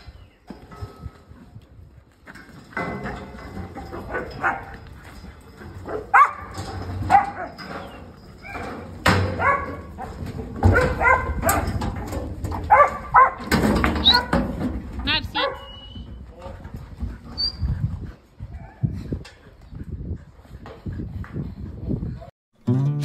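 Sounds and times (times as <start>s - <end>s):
dog barking: 4.1s - 4.7s, 5.9s - 6.5s, 9.4s - 9.9s, 10.7s - 11.6s, 12.7s - 13.5s.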